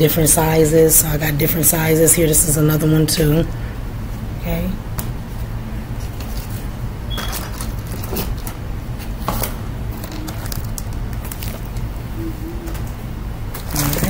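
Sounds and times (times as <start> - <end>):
low hum: 11.9 - 13.4.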